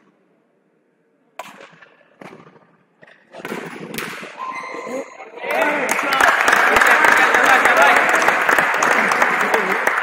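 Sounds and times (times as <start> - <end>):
crowd noise: 4.1 - 10.0.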